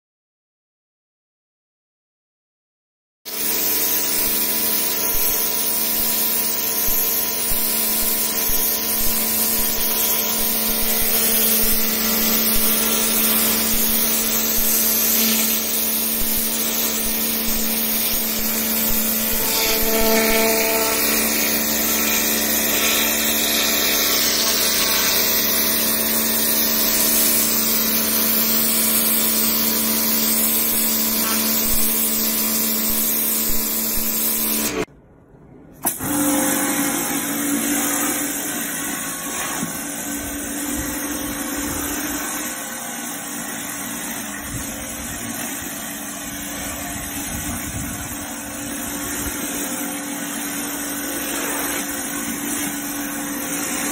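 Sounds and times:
pressure washer pump humming: 3.3 - 34.9, 35.8 - 53.9
water jet hissing on stone: 3.3 - 34.9, 48.6 - 53.9.

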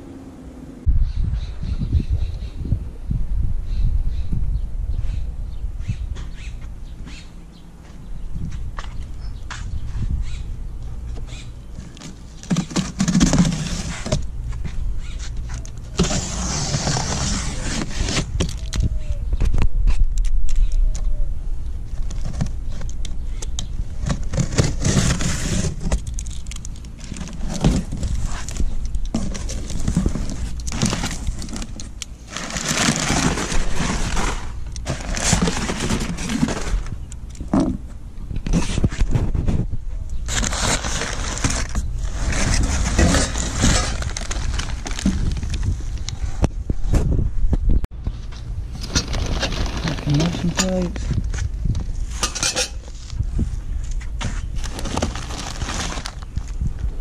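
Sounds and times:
knife cutting cardboard box: 15.9 - 18.4, 40.3 - 44.2
packing paper crinkling: 24.0 - 37.0, 40.2 - 46.1, 48.8 - 51.0, 54.6 - 56.6.

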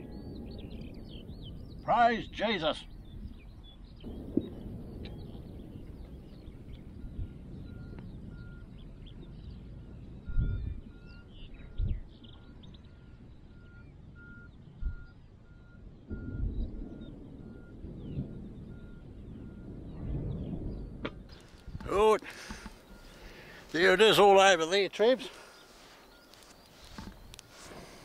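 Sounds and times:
faint bird chirps: 0.0 - 28.0
low rumble: 2.8 - 23.8
reversing alarm beeping: 6.3 - 19.9, 20.8 - 28.0.

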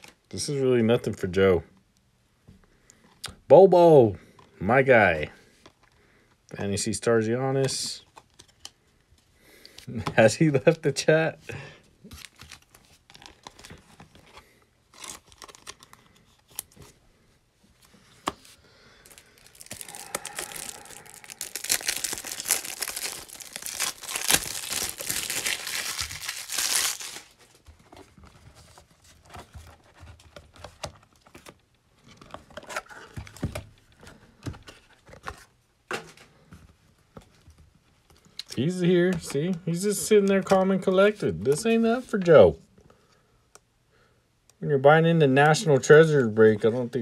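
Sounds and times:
soft rustling of packs: 7.7 - 43.1
plastic wrapper tearing and crinkling: 12.1 - 14.0, 14.9 - 16.8, 19.0 - 27.6.

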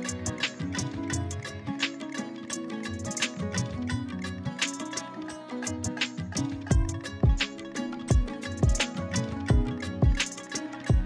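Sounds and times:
deep kick drums: 6.7 - 7.4, 8.1 - 8.8, 9.5 - 10.2.

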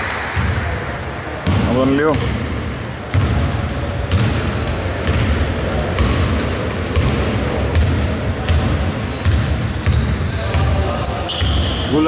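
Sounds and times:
low hall rumble: 0.0 - 11.0
basketball bouncing: 1.4 - 2.5, 3.1 - 6.3, 6.9 - 11.6
short high squeaks: 4.5 - 5.0, 9.6 - 11.8.

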